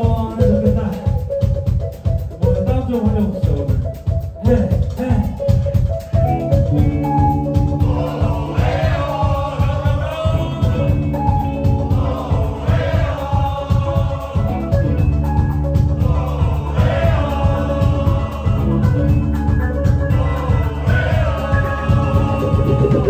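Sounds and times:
live band with drums and bass: 0:00.0 - 0:23.0.

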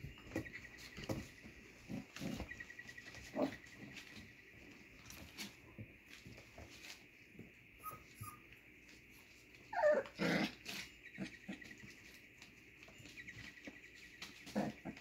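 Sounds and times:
puppy growling: 0:01.8 - 0:03.9, 0:09.7 - 0:11.8, 0:14.4 - 0:15.0
puppy whining: 0:07.8 - 0:08.6, 0:09.6 - 0:11.8.

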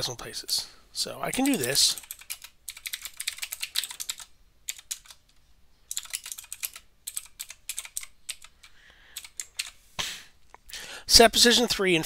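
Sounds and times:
typing on a keyboard: 0:01.3 - 0:05.3, 0:05.9 - 0:09.8.

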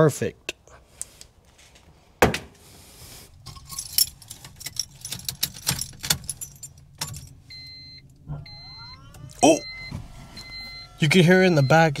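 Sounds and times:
car keys jangling: 0:03.3 - 0:08.2
steady electronic beep: 0:07.5 - 0:12.0.

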